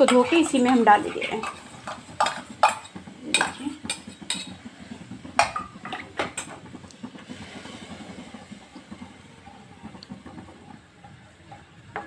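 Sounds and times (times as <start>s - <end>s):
spatula knocking on pan: 0.0s - 4.6s
spatula scraping a pan: 0.0s - 6.1s
gravy sizzling: 0.0s - 12.0s.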